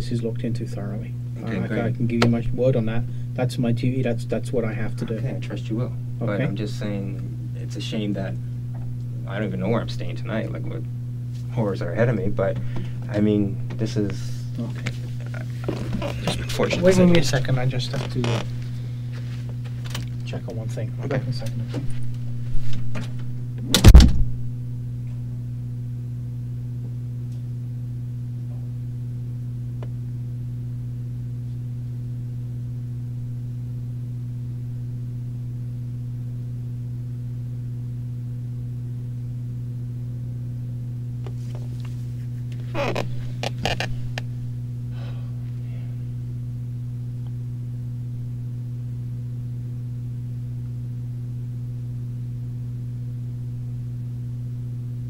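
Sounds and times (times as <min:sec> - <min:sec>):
electrical mains hum: 0:00.0 - 0:55.0
person shifting in a chair: 0:14.7 - 0:16.6, 0:41.3 - 0:44.2
door shutting hard: 0:23.6 - 0:24.3.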